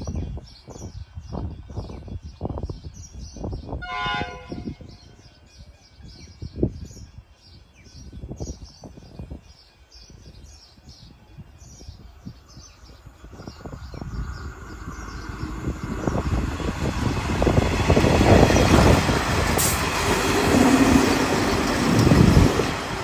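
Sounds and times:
birds chirping: 0.0 - 23.0
train horn blast: 3.8 - 4.9
low rumbling bumps: 12.8 - 23.0.

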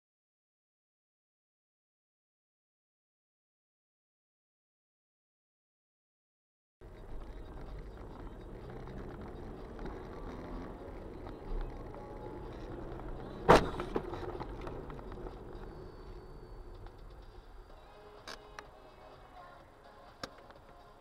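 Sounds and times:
car engine and road rumble: 6.8 - 21.0.

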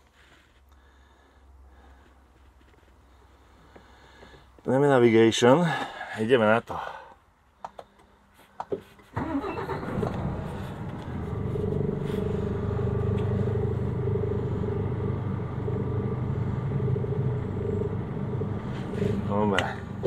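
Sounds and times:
diesel truck engine starting and idling: 9.2 - 20.0.

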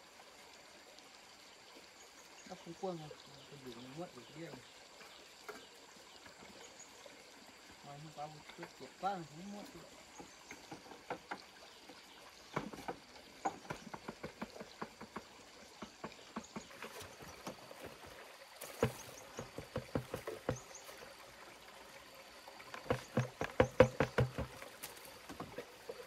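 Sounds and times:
low steady hiss: 0.0 - 23.0
light knocks and taps: 10.2 - 18.0, 18.6 - 21.0, 22.7 - 25.7.

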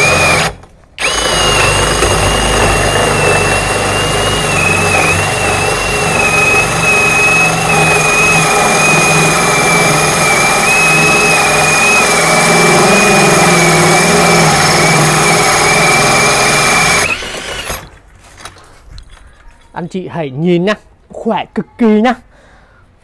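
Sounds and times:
drill grinding through brick: 0.0 - 17.9.

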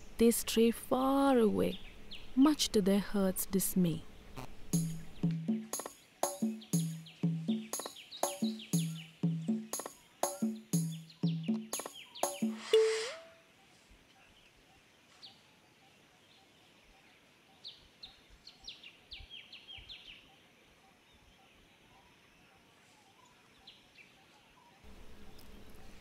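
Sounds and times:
small bird chirping: 4.2 - 13.4.

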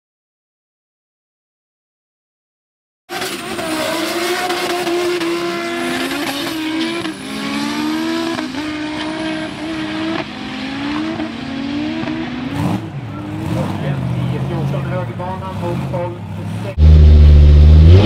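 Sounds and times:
car engine accelerating through gears: 3.1 - 14.7, 15.6 - 18.0.

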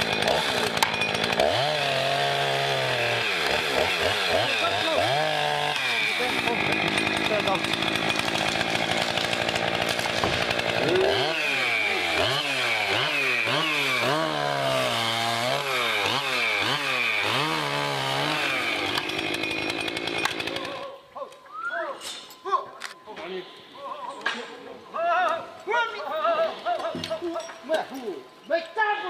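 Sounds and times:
chainsaw running: 0.0 - 21.0.

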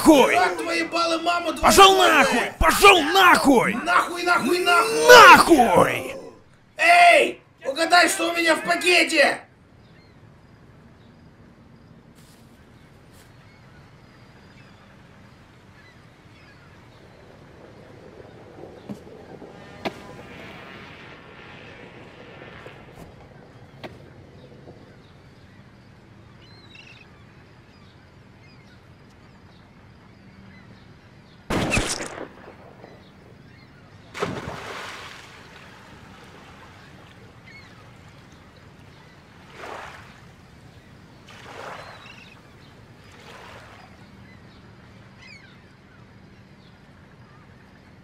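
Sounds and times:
faint bird calls: 22.4 - 47.9
gunshots: 31.5 - 33.5.

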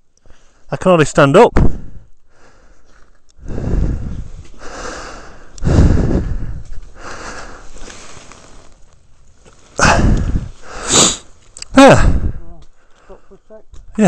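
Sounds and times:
man breathing hard and gasping: 1.6 - 8.2, 9.8 - 13.3.

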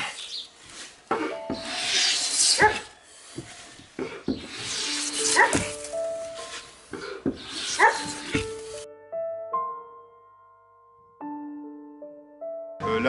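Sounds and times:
hand plane shaving wood: 0.6 - 8.8.

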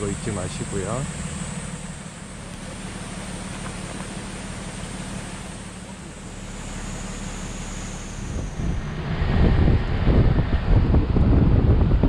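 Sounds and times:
vehicle engine humming: 0.0 - 12.0
wind or road rushing noise: 8.1 - 12.0.

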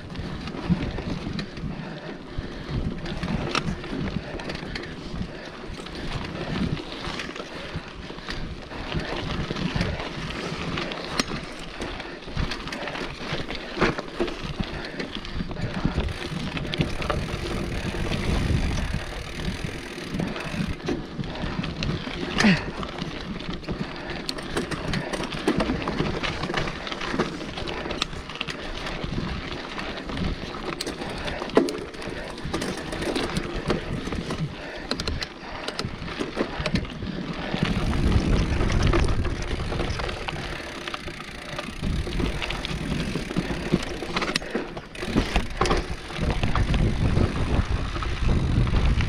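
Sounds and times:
bike rattling and knocking: 0.0 - 49.0
bike tyres rumbling on dirt trail: 0.0 - 49.0
wind buffeting microphone: 14.4 - 23.2, 28.8 - 44.3, 44.9 - 49.0.

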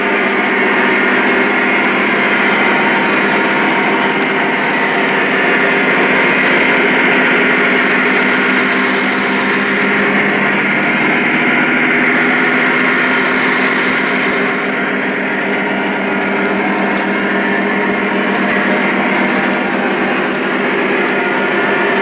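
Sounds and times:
diesel engine drone: 0.0 - 22.0
hum of motors and wheels: 0.0 - 22.0.

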